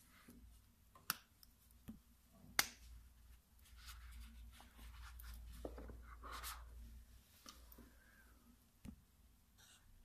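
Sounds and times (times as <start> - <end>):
soft rustling and scraping: 3.3 - 8.2.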